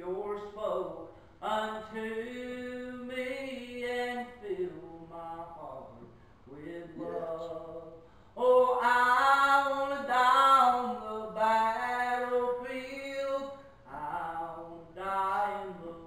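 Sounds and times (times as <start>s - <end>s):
man singing a hymn: 0.0s - 16.0s.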